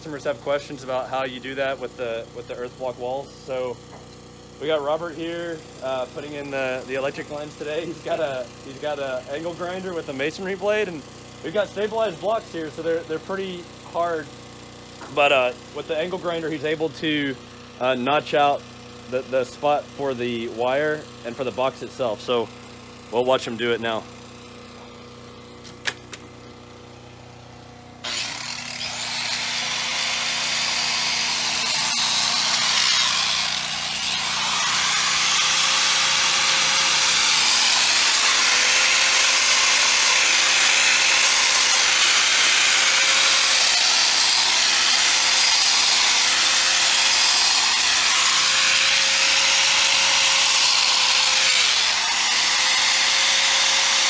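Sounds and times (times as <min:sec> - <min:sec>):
angle grinder cutting block: 0:28.0 - 0:54.0.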